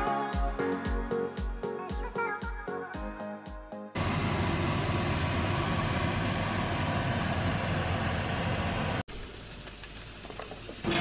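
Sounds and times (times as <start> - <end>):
background music: 0.0 - 4.0
fish sizzling in a frying pan: 9.1 - 10.9.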